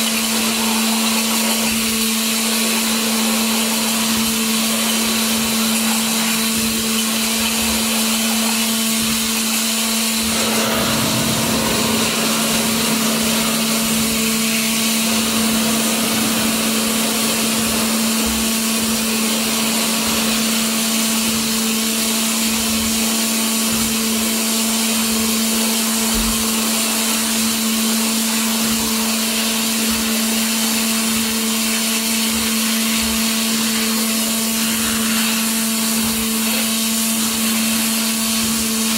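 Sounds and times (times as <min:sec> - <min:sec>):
steady machine hum: 0:00.0 - 0:22.1
water jet hissing: 0:00.0 - 0:22.6, 0:25.4 - 0:38.9.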